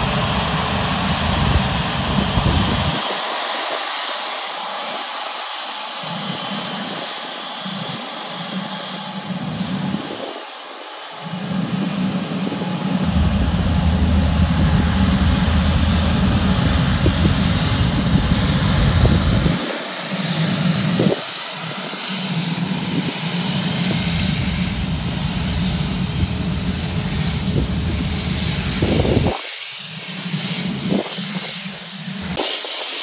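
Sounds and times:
jet engines at high power: 0.0 - 33.0
low rumble: 11.9 - 19.6, 23.9 - 29.3.

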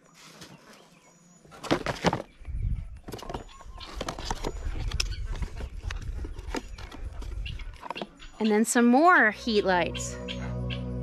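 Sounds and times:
packaging clicks scrapes and rustling: 3.2 - 8.0.

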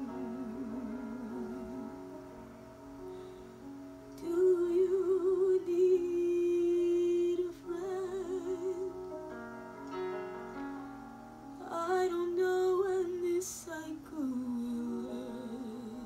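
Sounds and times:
woman singing wordless melody: 0.0 - 2.5, 4.0 - 9.4, 11.5 - 16.0
soft instrumental accompaniment: 0.0 - 16.0.

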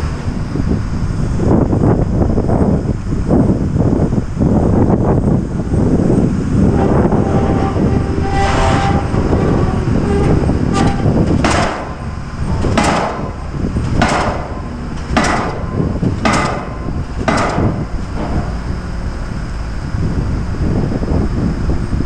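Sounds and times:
steady low rumble: 0.0 - 22.0
pile hammer metallic strikes: 10.8 - 12.0, 12.6 - 18.6.

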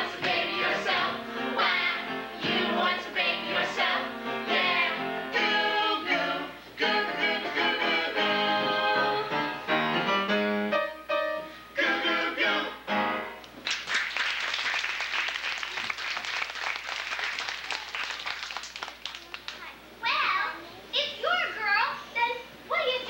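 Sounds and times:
person singing with instruments: 0.0 - 9.7, 11.7 - 13.2
audience applause: 13.6 - 19.6.

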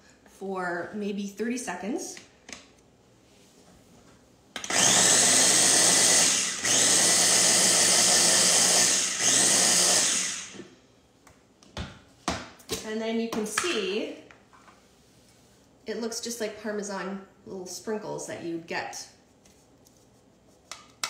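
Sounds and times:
food processor motor grinding: 4.6 - 10.6.

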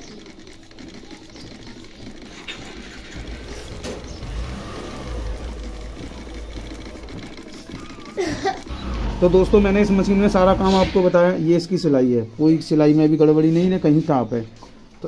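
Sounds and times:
sewing machine stitching: 0.0 - 11.0.

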